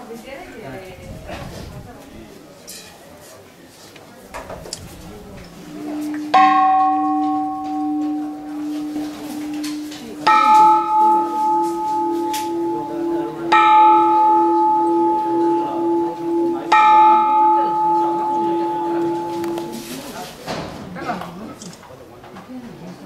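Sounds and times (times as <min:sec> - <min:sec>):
temple bell ringing: 0:05.6 - 0:20.1.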